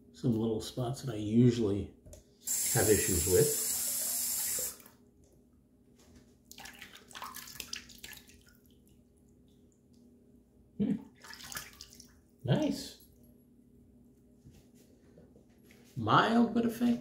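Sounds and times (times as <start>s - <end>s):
sink tap running: 2.5s - 4.8s
water splashing and dripping: 6.5s - 10.0s, 11.2s - 12.2s.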